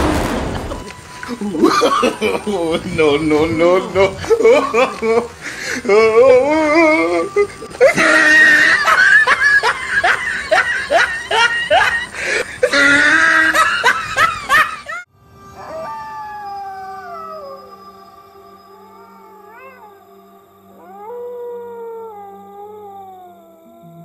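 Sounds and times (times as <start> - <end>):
low steady hum: 0.0 - 24.0
excited shrieking voices: 1.0 - 22.9
dog howling: 5.9 - 12.0, 15.6 - 24.0.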